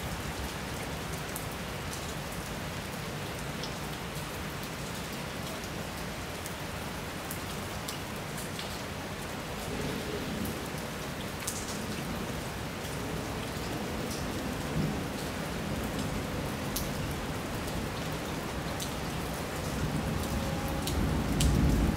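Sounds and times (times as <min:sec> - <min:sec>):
steady rain: 0:00.0 - 0:21.9
low rumble of thunder: 0:19.2 - 0:21.9.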